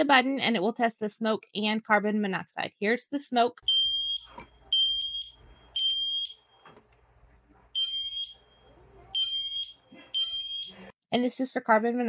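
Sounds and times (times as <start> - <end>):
smoke alarm beeping: 3.6 - 6.7, 7.8 - 10.9.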